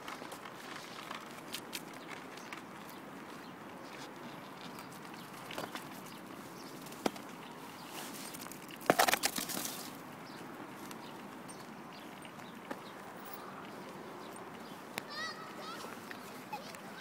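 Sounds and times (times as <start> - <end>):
slab scraping on asphalt: 6.8 - 10.0.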